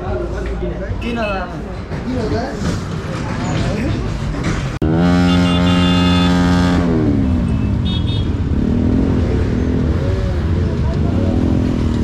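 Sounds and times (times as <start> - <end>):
road noise: 0.0 - 12.0
wind: 0.0 - 12.0
motorcycle engine revving: 4.8 - 12.0.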